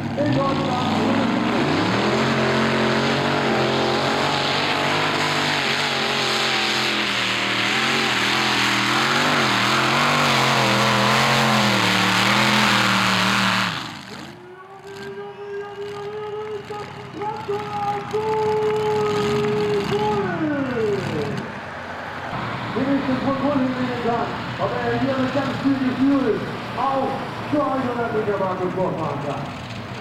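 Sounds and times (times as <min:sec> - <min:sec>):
tractor engine revving under load: 0:00.0 - 0:21.7.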